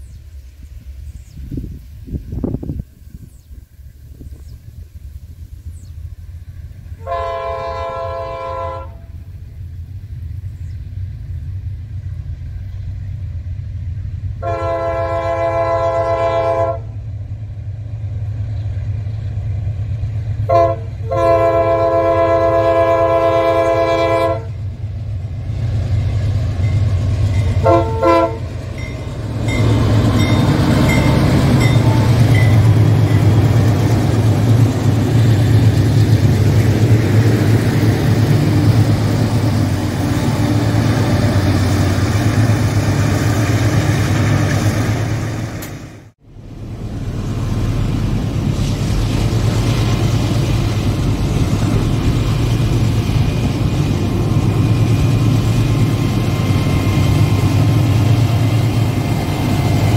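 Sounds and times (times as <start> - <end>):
deep diesel engine rumble: 0.0 - 59.9
locomotive air horn blasts: 7.0 - 9.2, 14.4 - 17.0, 20.5 - 24.6, 27.6 - 28.9, 29.5 - 32.7.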